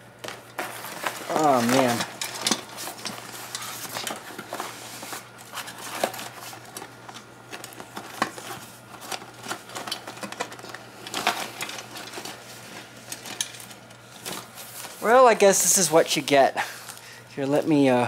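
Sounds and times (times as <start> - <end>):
rustling in cardboard box: 0.6 - 12.9.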